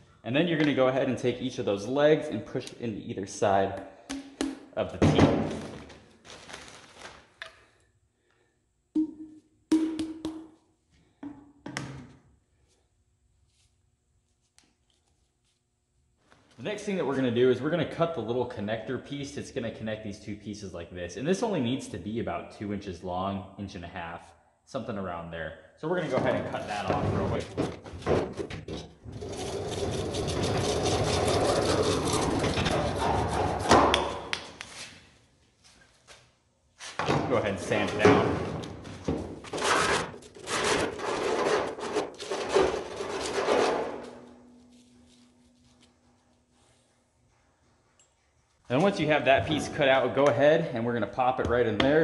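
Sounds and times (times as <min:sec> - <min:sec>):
pvc pipe knocking on wood: 0:09.0 - 0:10.5, 0:11.2 - 0:12.0
hacksaw cutting plastic pipe: 0:29.3 - 0:34.1, 0:39.6 - 0:44.0.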